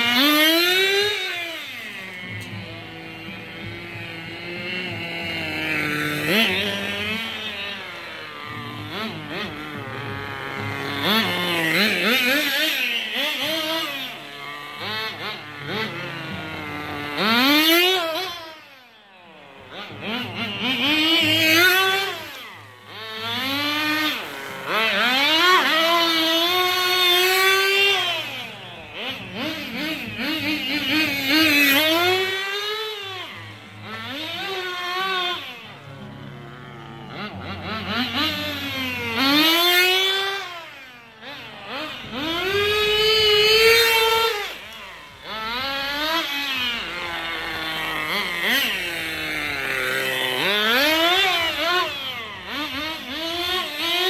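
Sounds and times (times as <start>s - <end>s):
rc car engine revving: 0.0s - 54.0s.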